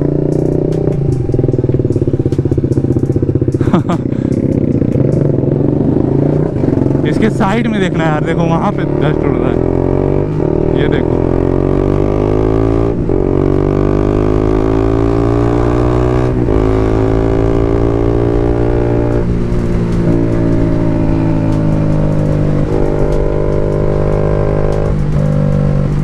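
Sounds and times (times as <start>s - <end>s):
motorcycle engine accelerating: 0.0s - 26.0s.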